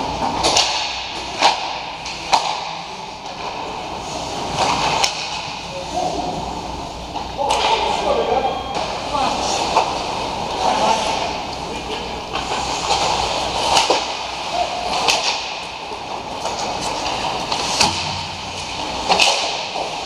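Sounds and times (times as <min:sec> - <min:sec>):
hockey sticks and puck cracking: 0:00.0 - 0:05.8, 0:07.1 - 0:08.0, 0:12.3 - 0:20.0.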